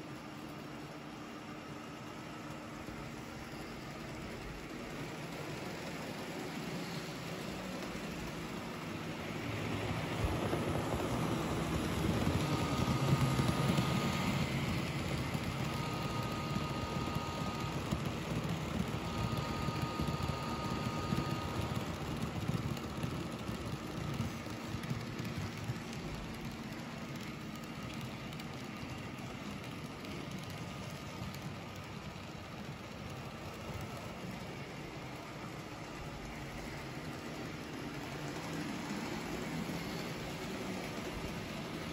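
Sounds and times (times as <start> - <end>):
model train wheels rumbling: 0.0 - 41.9
thin high whine: 3.2 - 25.9.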